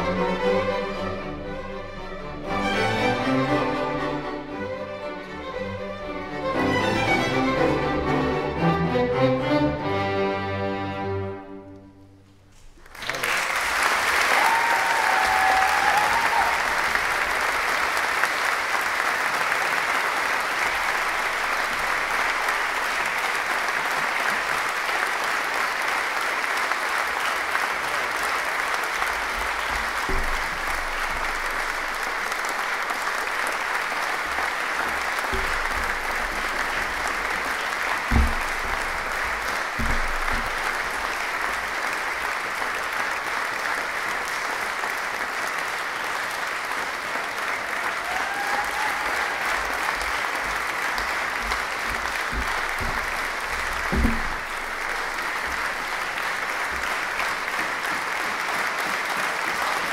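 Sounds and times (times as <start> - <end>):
audience applauding: 12.6 - 59.9
dull thumps: 35.3 - 41.1.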